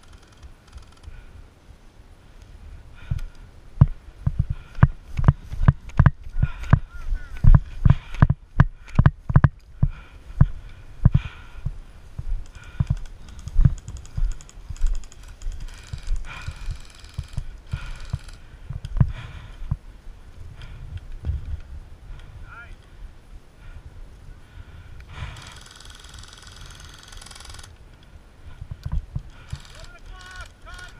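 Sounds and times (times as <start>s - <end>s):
running footsteps on grass: 3.2s - 21.7s.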